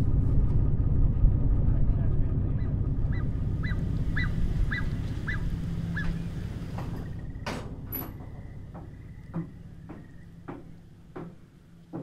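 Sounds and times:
low rumble: 0.0s - 11.9s
bird squeaky calls: 3.1s - 7.3s.

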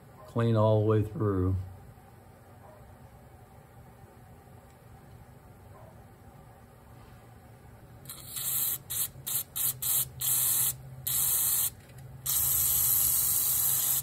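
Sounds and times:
aerosol spray hissing: 8.1s - 14.0s.

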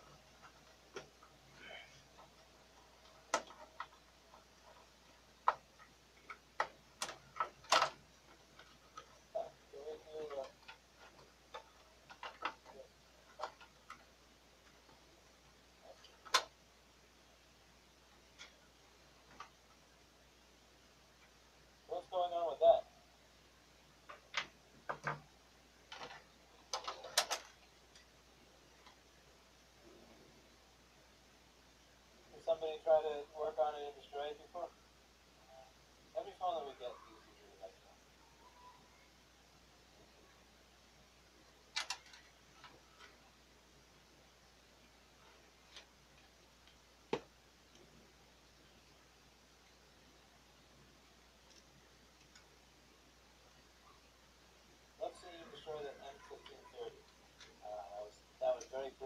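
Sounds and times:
plastic and metal clicks: 41.7s - 43.1s.

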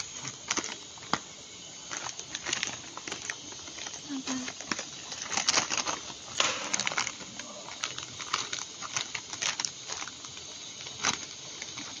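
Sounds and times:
plastic pack crinkling: 0.0s - 12.0s.

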